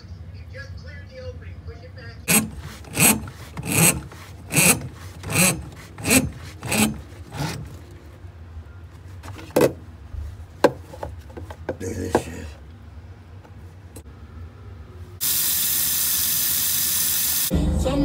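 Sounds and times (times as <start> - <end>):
drain snake scraping in metal pipe: 2.3 - 7.9.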